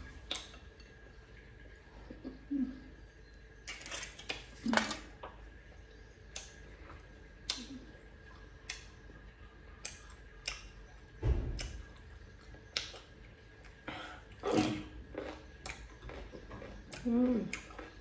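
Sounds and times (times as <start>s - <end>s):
cucumber crunching: 11.4s - 18.0s.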